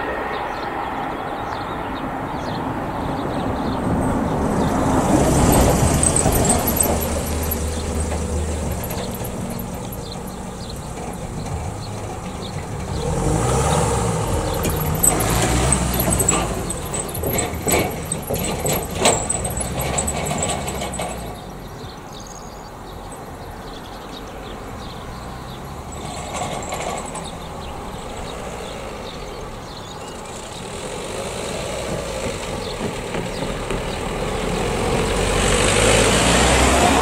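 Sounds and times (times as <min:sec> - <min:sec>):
pickup truck driving past: 0:00.0 - 0:22.0, 0:23.0 - 0:37.0
wheels knocking over rails: 0:03.9 - 0:22.0, 0:25.4 - 0:28.5, 0:31.8 - 0:37.0.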